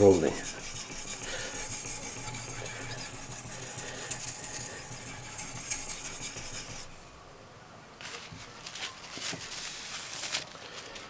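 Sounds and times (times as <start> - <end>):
sharpening stone scraping steel blade: 0.0 - 7.0.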